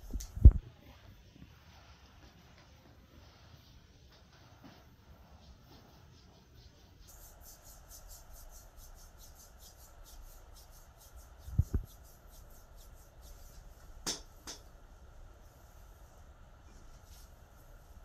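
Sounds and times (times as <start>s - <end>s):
hands rubbing skin swishing: 1.6s - 14.0s, 16.8s - 18.0s.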